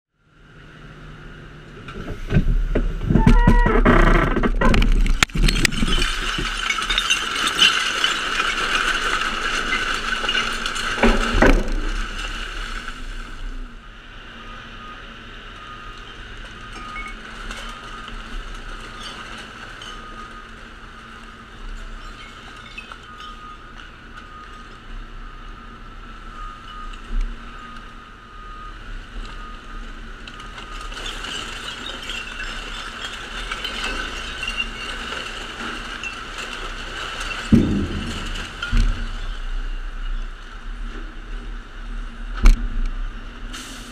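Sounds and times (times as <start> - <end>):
recyclables clinking and rattling: 4.4 - 12.4, 30.4 - 40.2.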